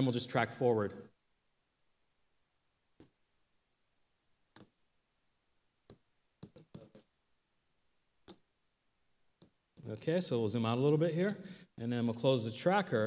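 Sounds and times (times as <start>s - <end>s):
keyboard and mouse clicks: 4.5s - 4.8s, 5.8s - 7.1s, 8.2s - 8.5s.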